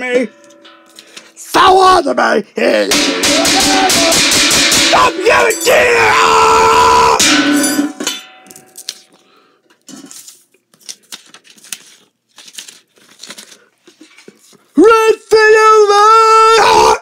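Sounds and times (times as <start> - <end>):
loud shout: 2.8 - 7.3, 14.8 - 17.0
paper rustling: 9.9 - 14.8.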